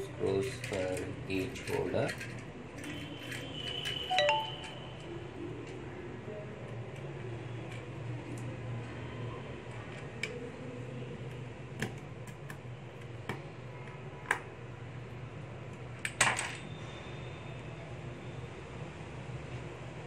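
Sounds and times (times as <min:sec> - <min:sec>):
plastic parts clicking and tapping: 0:11.2 - 0:14.5.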